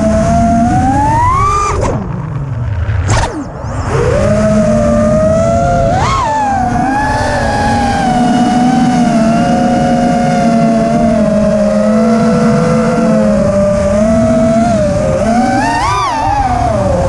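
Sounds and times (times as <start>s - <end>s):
drone motors whining: 0.0s - 17.0s
rushing noise: 0.8s - 10.0s.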